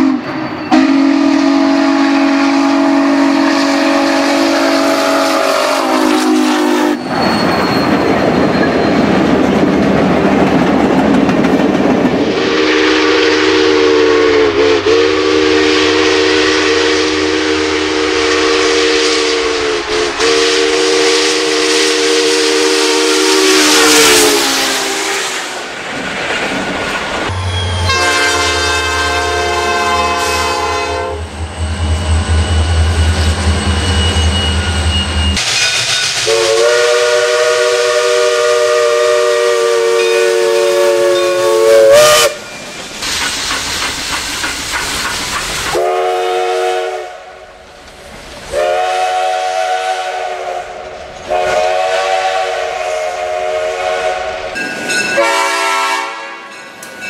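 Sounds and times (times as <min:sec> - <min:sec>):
diesel locomotive horn: 0:00.0 - 0:07.1, 0:12.3 - 0:25.6, 0:27.3 - 0:35.4, 0:36.2 - 0:42.5, 0:45.7 - 0:47.6, 0:48.5 - 0:56.6
steam locomotive whistle: 0:00.0 - 0:09.0, 0:12.2 - 0:25.6, 0:27.3 - 0:42.7, 0:45.7 - 0:47.6, 0:48.5 - 0:56.6
rushing noise: 0:31.1 - 0:36.9, 0:42.3 - 0:45.9.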